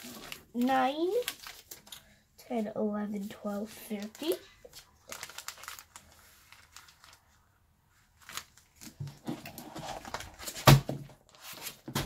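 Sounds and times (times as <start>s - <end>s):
plastic card pockets crinkling: 0.0s - 2.2s, 3.8s - 7.3s, 8.2s - 12.0s.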